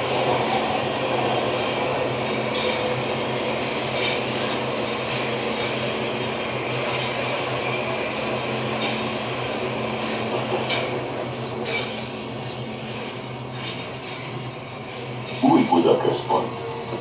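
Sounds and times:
train wheels rumbling on rail: 0.0s - 17.0s
faint wheel squeals: 9.7s - 17.0s.

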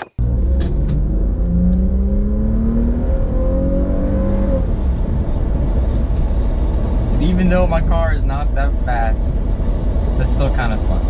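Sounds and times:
car engine accelerating: 0.0s - 11.0s
low road rumble: 0.0s - 11.0s.

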